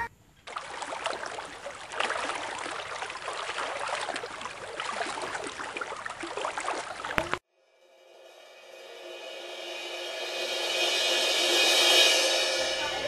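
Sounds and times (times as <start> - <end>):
water sloshing in washbasins: 0.4 - 7.4.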